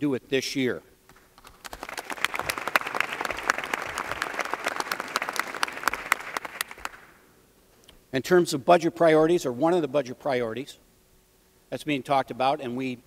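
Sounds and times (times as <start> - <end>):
people applauding: 1.4 - 7.2.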